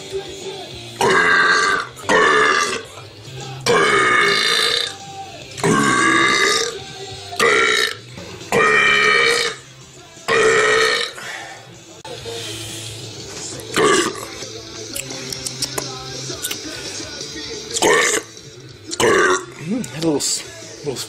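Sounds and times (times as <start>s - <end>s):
man belching loudly: 1.0s - 3.0s, 3.6s - 5.0s, 5.6s - 11.3s, 13.7s - 14.4s, 17.7s - 19.8s.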